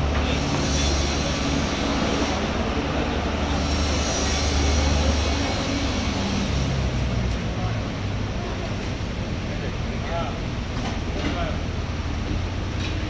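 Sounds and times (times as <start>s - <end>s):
machinery rumble: 0.0s - 13.0s.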